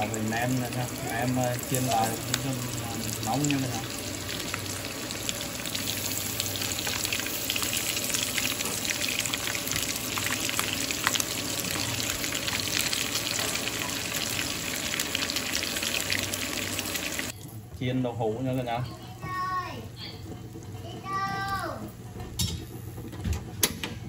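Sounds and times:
food sizzling in hot oil: 0.0 - 17.4.

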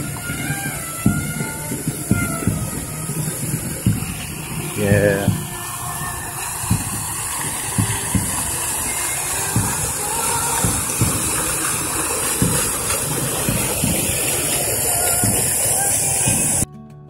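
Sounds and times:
short low thumps: 0.0 - 16.6
fountain water splashing: 0.0 - 16.7.

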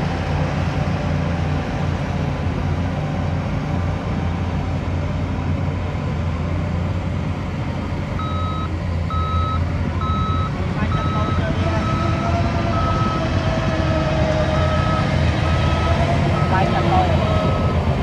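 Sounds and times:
bulldozer diesel engines running: 0.0 - 18.0
reversing alarm beeping: 8.2 - 13.3, 14.5 - 18.0.

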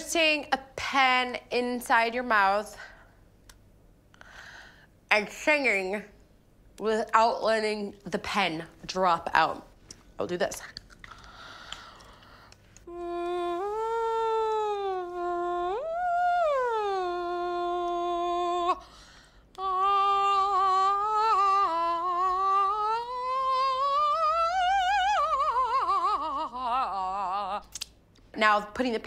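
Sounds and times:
soprano singing vocal exercise: 11.8 - 29.0.

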